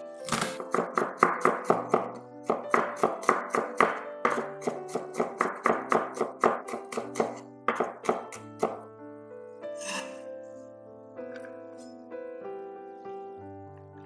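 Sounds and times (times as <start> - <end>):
background music: 0.0 - 14.0
knife chopping on wooden board: 0.3 - 8.8.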